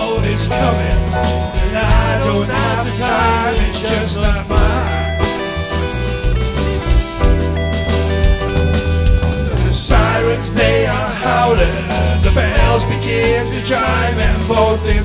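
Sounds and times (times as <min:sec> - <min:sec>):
man singing: 0:00.0 - 0:05.5, 0:09.6 - 0:15.0
rock band playing: 0:00.0 - 0:15.0.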